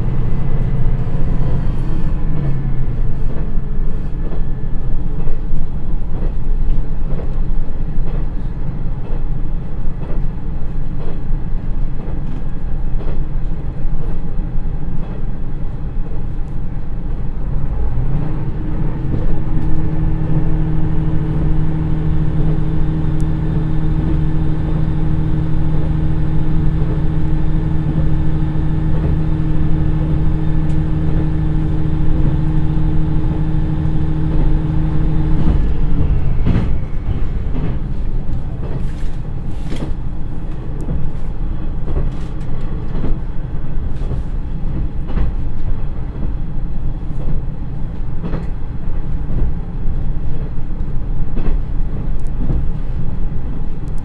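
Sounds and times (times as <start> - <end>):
diesel engine droning: 0.0 - 6.3, 17.2 - 50.0
train wheel and rail noise: 0.0 - 54.0.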